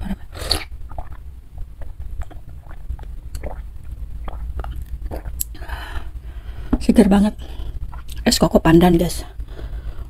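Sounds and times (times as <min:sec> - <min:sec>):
steady low hum: 0:00.0 - 0:10.0
wet sips and swallowing: 0:00.3 - 0:05.6.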